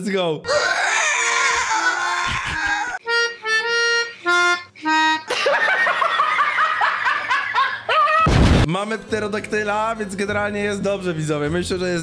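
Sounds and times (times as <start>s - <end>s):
shrill screeching: 0.5s - 3.0s.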